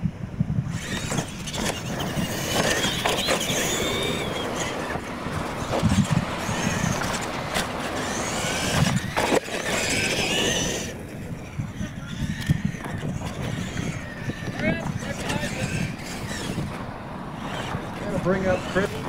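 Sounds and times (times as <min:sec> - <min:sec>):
electric motors whining: 0:00.4 - 0:19.0
toy trucks landing knocks: 0:00.7 - 0:11.2.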